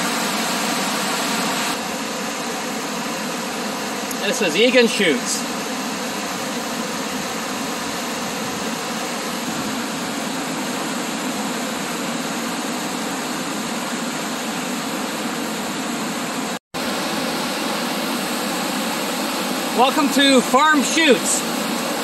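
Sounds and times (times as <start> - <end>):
whitewater rushing over rocks: 16.8 - 22.0.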